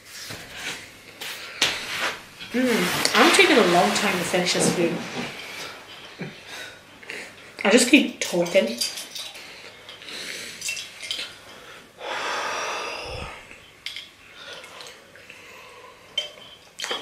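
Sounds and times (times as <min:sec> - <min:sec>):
person exhaling heavily: 0:11.6 - 0:13.5.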